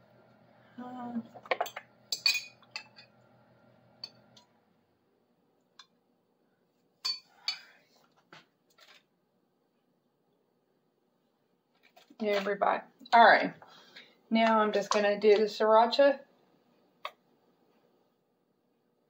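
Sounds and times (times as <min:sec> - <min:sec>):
low steady hum: 0:00.0 - 0:08.2
cutlery and kitchenware clinking: 0:01.4 - 0:03.1, 0:07.0 - 0:07.7.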